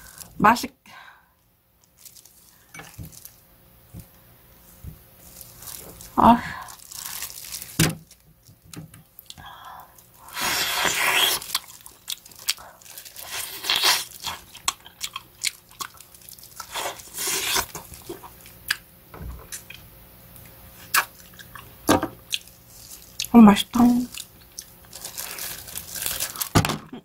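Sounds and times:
person chewing meat: 0:09.2 - 0:18.8, 0:19.5 - 0:23.3, 0:24.1 - 0:26.5
wet sucking noises: 0:10.2 - 0:11.6.

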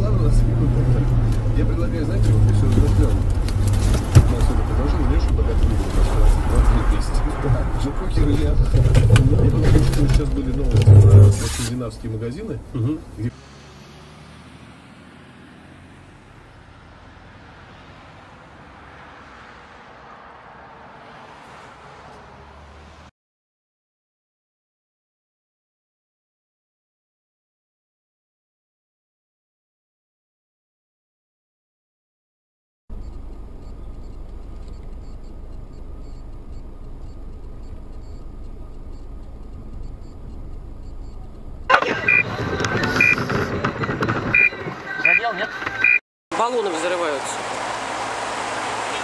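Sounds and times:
car engine idling: 0:00.0 - 0:13.3, 0:32.9 - 0:49.0
traffic noise: 0:00.0 - 0:23.1, 0:32.9 - 0:49.0
light ticks: 0:33.0 - 0:41.4.

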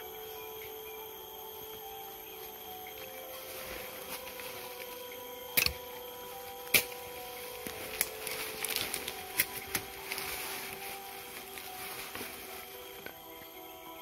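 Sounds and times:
faint held high tones: 0:00.0 - 0:14.0
twigs cracking underfoot: 0:01.7 - 0:13.6
light rustling: 0:03.0 - 0:13.5.

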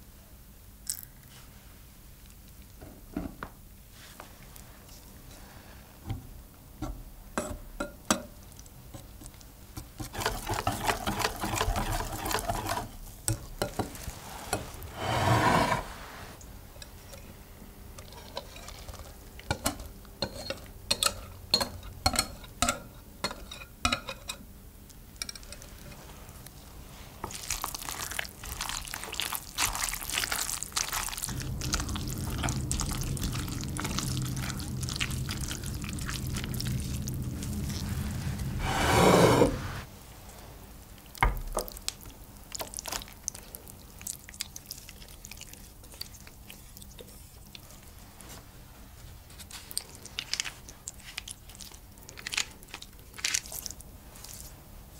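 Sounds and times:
wooden spoon stirring wetly: 0:09.0 - 0:17.0, 0:25.5 - 0:38.8, 0:42.5 - 0:48.4
quick whisking: 0:10.0 - 0:12.9
batter pouring: 0:27.2 - 0:38.8.

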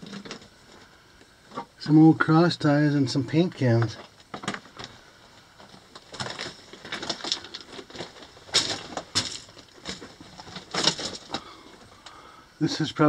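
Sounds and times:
footsteps crunching on rock rubble: 0:05.6 - 0:11.9.

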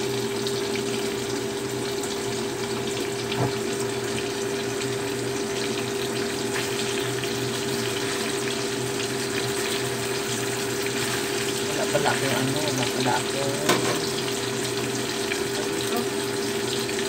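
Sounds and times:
tofu sizzling in hot oil: 0:00.0 - 0:17.0.

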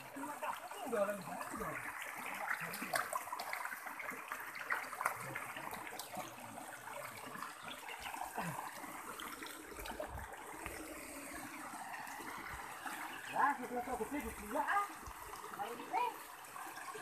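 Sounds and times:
people wading and splashing: 0:00.0 - 0:17.0
river water over rocks: 0:00.0 - 0:17.0.

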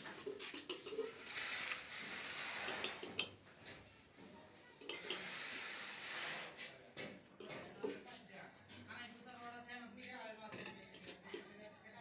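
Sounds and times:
brush scrubbing on plastic pipe: 0:00.0 - 0:04.1, 0:04.9 - 0:06.8.

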